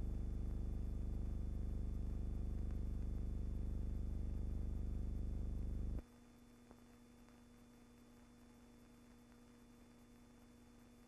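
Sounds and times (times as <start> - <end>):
loud low electrical hum: 0.0 - 6.5
faint steady hum: 0.0 - 11.0
faint clicks: 1.7 - 3.4.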